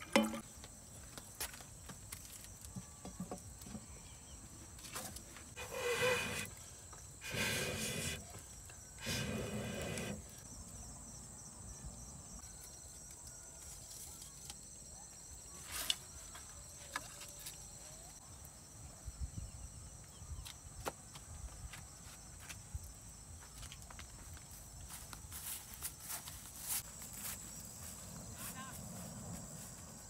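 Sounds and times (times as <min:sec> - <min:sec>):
crickets chirring: 0:00.1 - 0:30.0
footsteps: 0:23.4 - 0:30.0.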